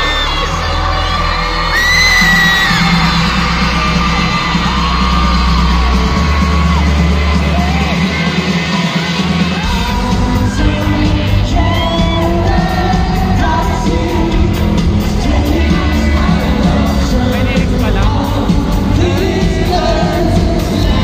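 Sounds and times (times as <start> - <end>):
fans screaming and whooping: 0.0 - 18.3
driving drum beat: 1.1 - 21.0
live rock band with singer: 8.4 - 21.0.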